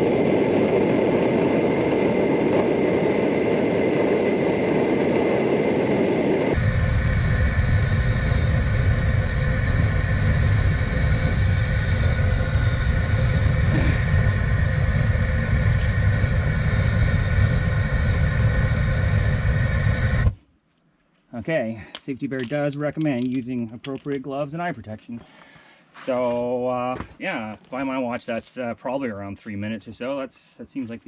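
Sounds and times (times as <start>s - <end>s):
gas torch flame rushing: 0.0s - 20.4s.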